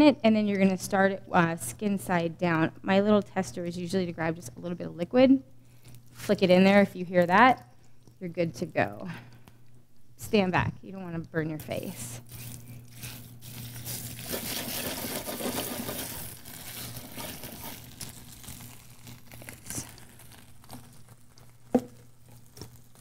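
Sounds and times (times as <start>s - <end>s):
steady low hum: 0.0s - 23.0s
fish sizzling in frying pan: 13.0s - 23.0s.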